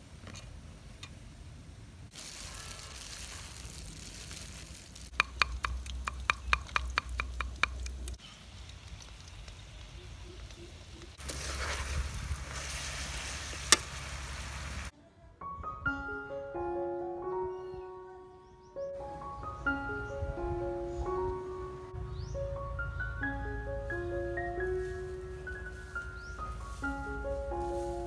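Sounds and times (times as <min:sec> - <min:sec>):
steady cooking hiss: 0:00.0 - 0:05.2, 0:08.2 - 0:14.9
sharp crack: 0:11.2 - 0:14.9.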